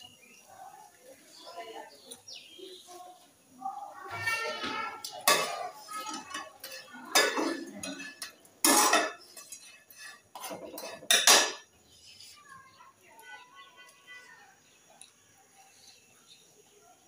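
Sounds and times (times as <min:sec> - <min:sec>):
metal pots and pans clanking: 0:04.7 - 0:11.7.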